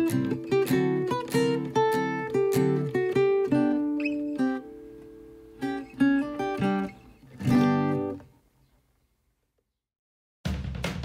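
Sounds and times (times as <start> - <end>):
acoustic guitar picking and strumming: 0.0 - 8.3.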